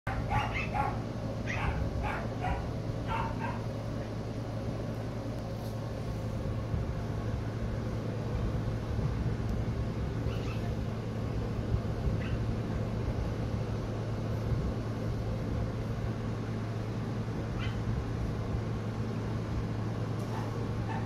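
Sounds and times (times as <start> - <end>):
puppy yipping: 0.1 - 3.6, 10.3 - 10.7, 12.2 - 12.4, 17.6 - 17.8, 20.3 - 21.0
steady low hum: 0.1 - 21.0.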